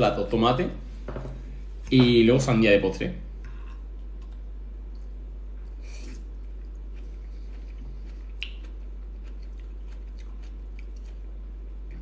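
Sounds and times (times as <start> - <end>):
low electrical hum: 0.0 - 12.0
faint chewing: 3.4 - 12.0.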